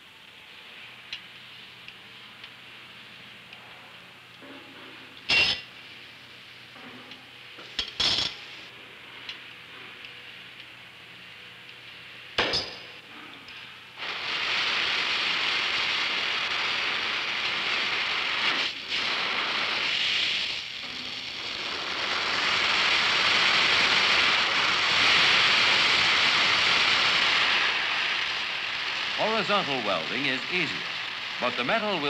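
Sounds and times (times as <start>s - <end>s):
hiss of gas and flame: 0.0s - 32.0s
torch igniting pop: 14.0s - 32.0s.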